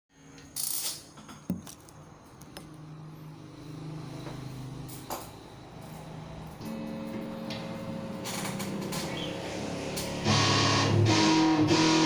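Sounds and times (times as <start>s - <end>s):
electric guitar note ringing: 6.6s - 12.0s.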